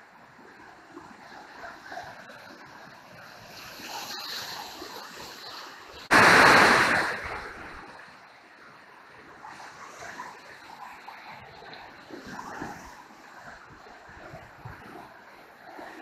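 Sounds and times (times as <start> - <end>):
river rapids rushing: 6.1 - 7.4.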